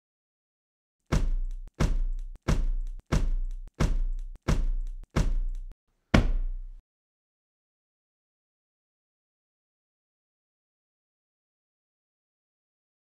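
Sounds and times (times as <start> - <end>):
heavy deep thuds: 6.2 - 6.8.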